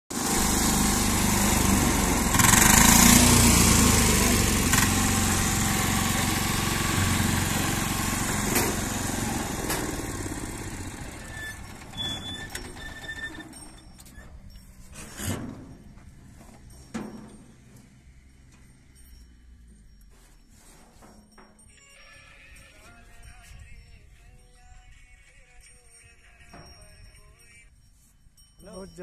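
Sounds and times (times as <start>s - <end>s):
power tiller engine running: 0.1s - 19.0s.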